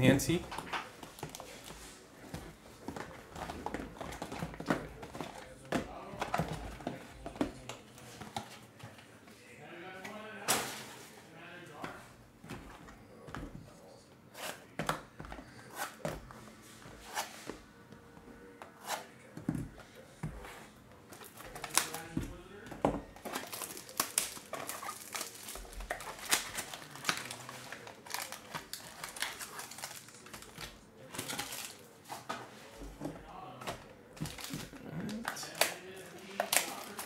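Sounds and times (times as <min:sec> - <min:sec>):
plastic wrap crinkling: 0:21.2 - 0:22.4, 0:23.2 - 0:31.9, 0:34.2 - 0:37.0.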